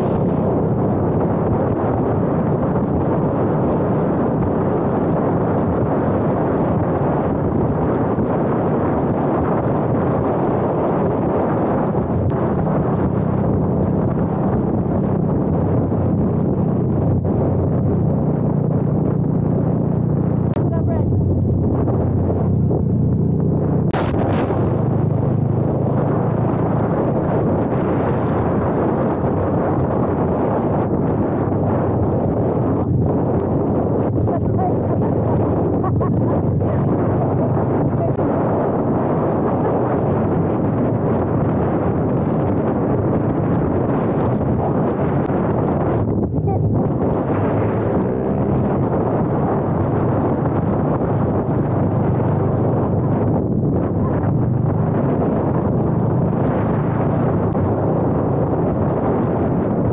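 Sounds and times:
motorcycle engine cruising: 0:00.0 - 0:59.9
wind rushing on microphone: 0:00.0 - 0:59.9.

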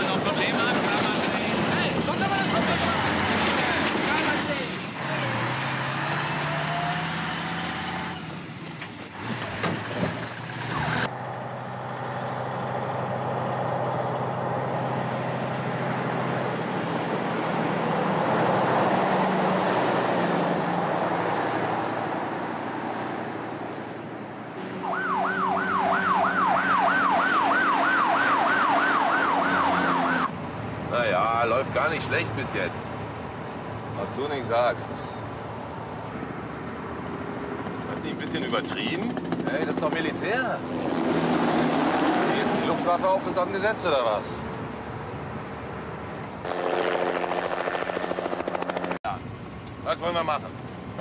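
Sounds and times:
police siren wailing: 0:24.7 - 0:30.3
truck driving by: 0:34.8 - 0:46.4.

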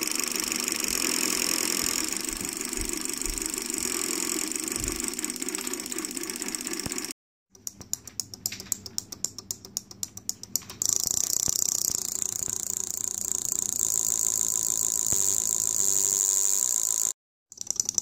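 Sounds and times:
solenoids clicking: 0:06.8 - 0:17.0.

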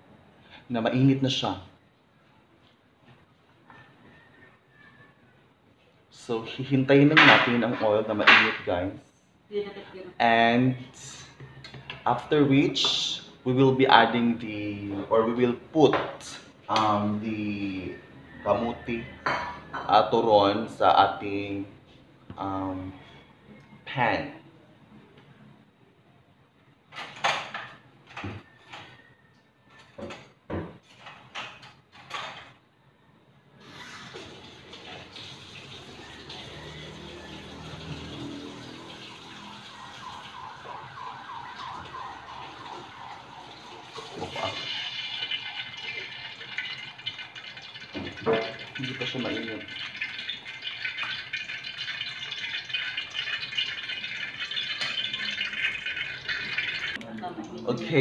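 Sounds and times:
dishes and utensils clattering: 0:07.1 - 0:08.7, 0:19.2 - 0:19.9, 0:29.7 - 0:32.6, 0:45.1 - 0:49.1, 0:49.7 - 0:57.0
oil crackling in a wok: 0:43.6 - 0:57.0.

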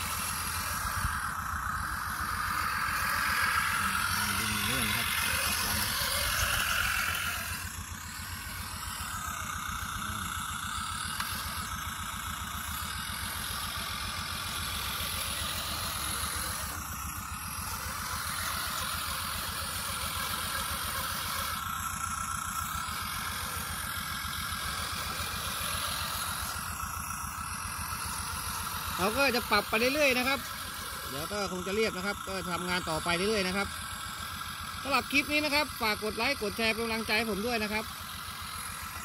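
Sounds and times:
high whine: 0:00.0 - 0:18.4
model tractor engine chugging: 0:00.0 - 0:39.0.

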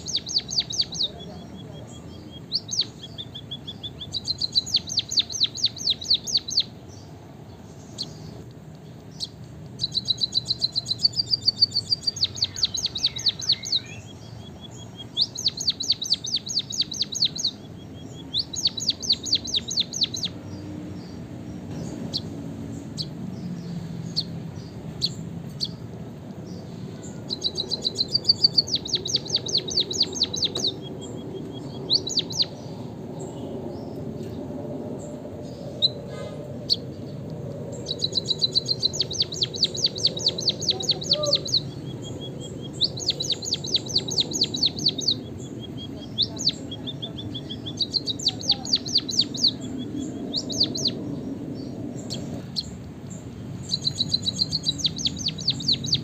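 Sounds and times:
bird singing high clicking notes: 0:07.8 - 0:20.4, 0:27.3 - 0:32.6, 0:36.7 - 0:46.6, 0:52.0 - 0:56.0.

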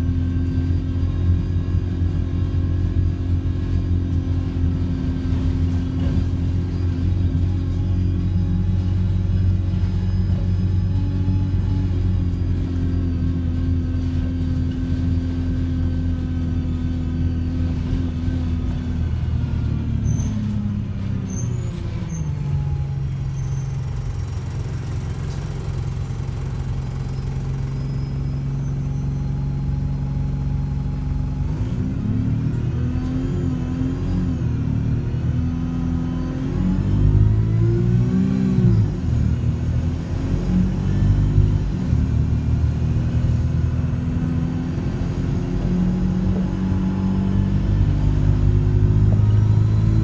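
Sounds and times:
bus engine droning: 0:00.0 - 0:50.0.

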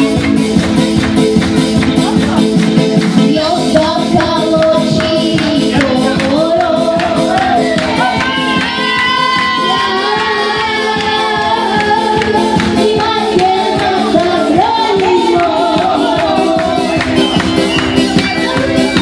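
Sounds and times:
electronic keyboard with steady beat: 0:00.0 - 0:19.0
boy singing into a microphone: 0:03.3 - 0:07.8, 0:09.3 - 0:16.8.

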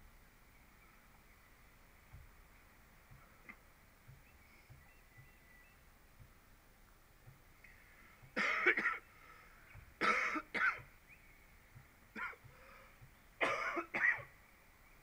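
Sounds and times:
person coughing: 0:08.4 - 0:09.0, 0:10.0 - 0:10.8, 0:13.4 - 0:14.3.

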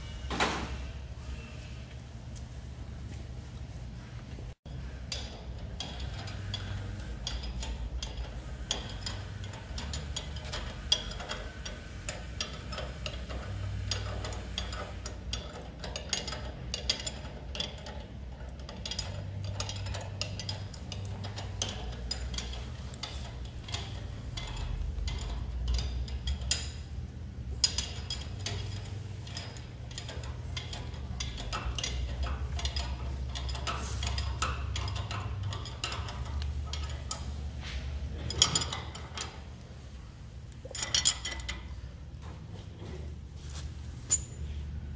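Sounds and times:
low steady hum: 0:00.0 - 0:44.9
ratchet wrench clicking: 0:05.0 - 0:39.7
metal parts clinking: 0:05.0 - 0:39.9, 0:40.5 - 0:42.0, 0:44.0 - 0:44.6.

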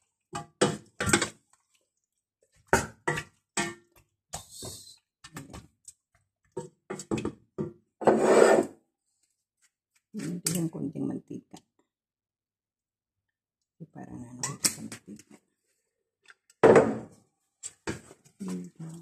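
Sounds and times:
spoon scraping pot: 0:08.0 - 0:08.7.

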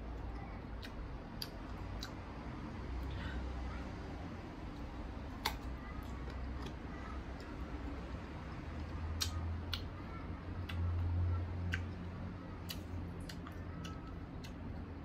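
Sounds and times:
chewing: 0:00.7 - 0:02.3, 0:12.6 - 0:15.0.

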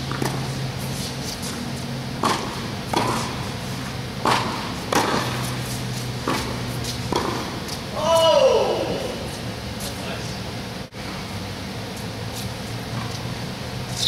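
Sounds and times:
ball bouncing: 0:00.0 - 0:00.4, 0:02.2 - 0:03.3, 0:04.2 - 0:05.4, 0:06.2 - 0:07.5
racket striking tennis ball: 0:00.0 - 0:08.3
steady low hum: 0:00.0 - 0:14.0.

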